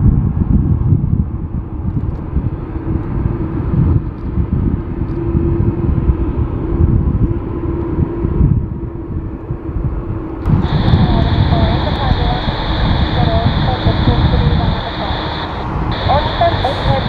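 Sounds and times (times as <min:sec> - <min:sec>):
jet engines rumbling: 0:10.4 - 0:17.0.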